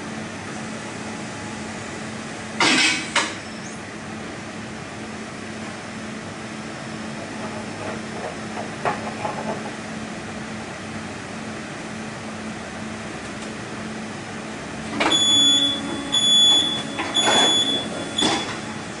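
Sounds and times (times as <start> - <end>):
high-pitched warning beeper: 15.0 - 19.0.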